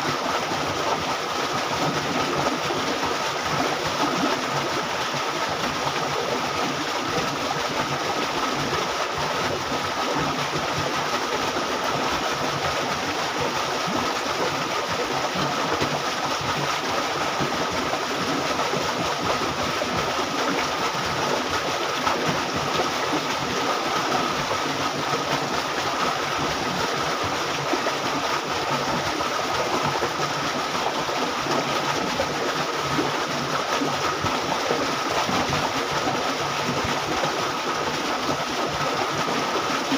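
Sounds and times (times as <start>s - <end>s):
water rushing along canal: 0.0s - 39.9s.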